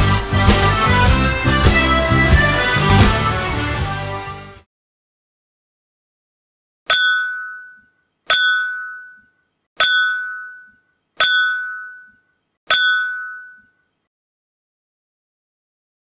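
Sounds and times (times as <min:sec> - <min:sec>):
ringing clink: 0:06.9 - 0:13.9.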